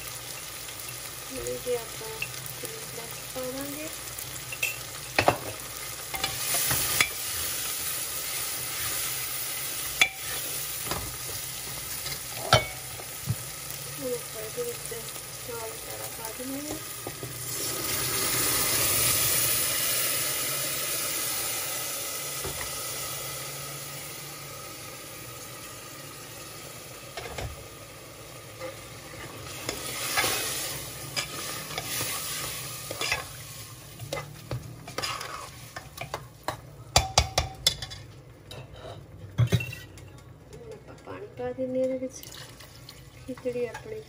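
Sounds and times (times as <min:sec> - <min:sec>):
loud sizzle in a pot: 0:00.0 - 0:44.0
ladle scraping and knocking a pot: 0:34.1 - 0:40.0.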